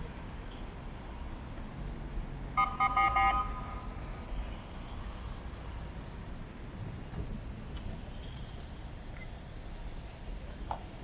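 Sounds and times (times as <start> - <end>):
street traffic rumble: 0.0 - 11.0
vehicle horn tooting: 2.6 - 3.7.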